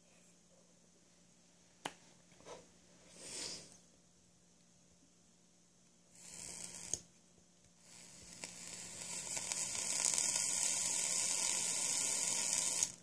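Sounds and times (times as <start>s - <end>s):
vape coil sizzling: 6.1s - 7.1s, 7.8s - 13.0s
vape click: 8.3s - 13.0s.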